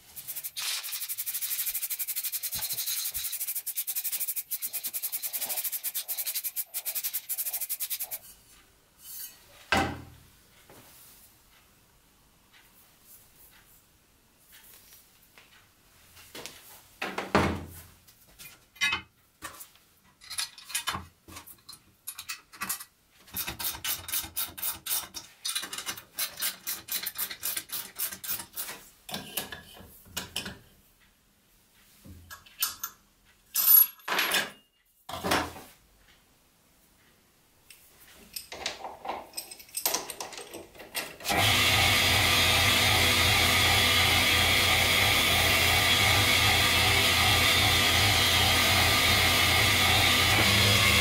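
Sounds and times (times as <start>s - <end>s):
rapid tool clicks: 0.2s - 8.2s
metal parts clicking on workbench: 20.2s - 30.6s, 38.3s - 41.3s
lathe cutting metal bar: 41.3s - 51.0s.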